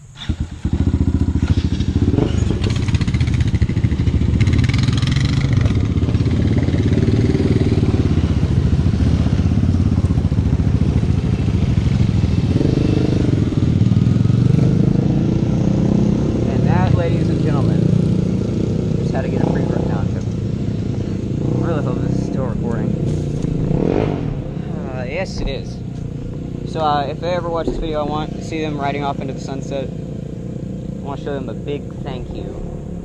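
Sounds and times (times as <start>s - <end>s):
small engine running and revving: 0.2s - 25.2s.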